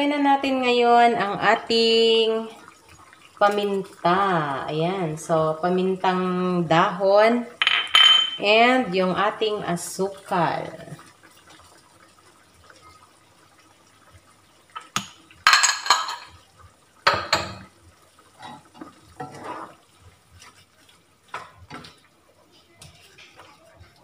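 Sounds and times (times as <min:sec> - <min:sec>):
utensils clattering against frying pan: 0:14.8 - 0:16.4
wooden spatula scraping in pan: 0:18.4 - 0:24.0.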